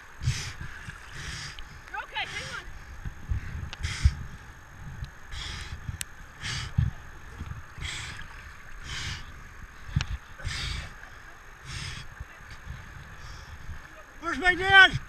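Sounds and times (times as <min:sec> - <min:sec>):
water sloshing: 0:00.0 - 0:14.7
heavy gasping breaths: 0:00.2 - 0:02.7, 0:03.3 - 0:04.2, 0:05.3 - 0:05.8, 0:06.4 - 0:06.9, 0:07.8 - 0:08.2, 0:08.8 - 0:11.0, 0:11.6 - 0:12.1.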